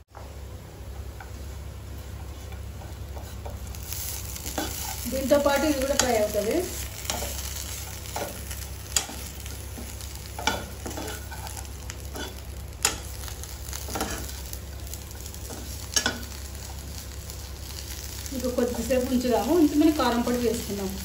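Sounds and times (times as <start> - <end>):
food sizzling in oil: 1.3 - 21.0
spoon scraping and knocking pan: 8.1 - 13.2, 13.9 - 14.4.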